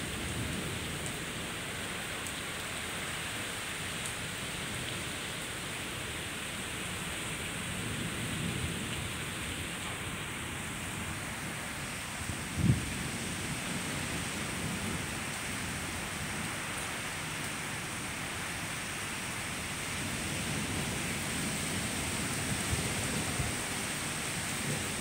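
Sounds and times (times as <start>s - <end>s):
steady rain hiss: 0.0s - 25.0s
low thunder rumbles: 12.2s - 15.1s.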